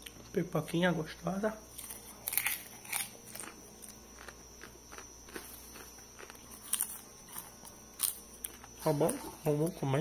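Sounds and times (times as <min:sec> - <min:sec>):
person chewing popcorn: 0:01.7 - 0:09.6.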